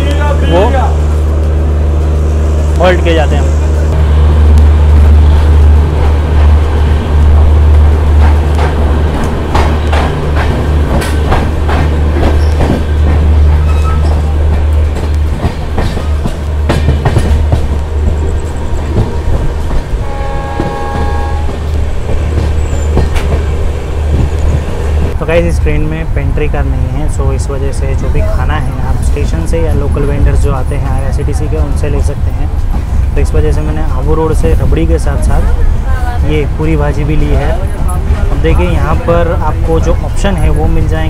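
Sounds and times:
train rumbling: 0.0 - 41.0
train horn: 20.0 - 21.6.

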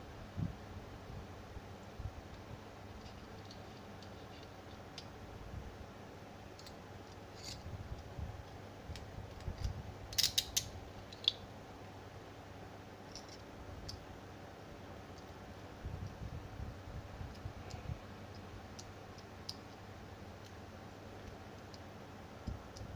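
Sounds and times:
key clicking in handcuff lock: 10.1 - 11.4.

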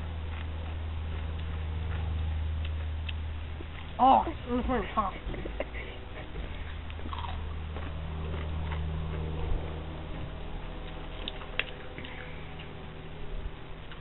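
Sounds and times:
low steady hum: 0.0 - 14.0
chewing crunchy chips: 0.1 - 4.0, 6.3 - 12.8.

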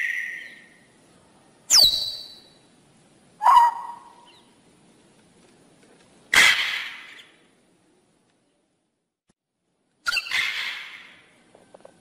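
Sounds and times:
harsh parrot squawk: 3.4 - 4.3, 10.0 - 11.2
parrot calling: 3.4 - 4.5.

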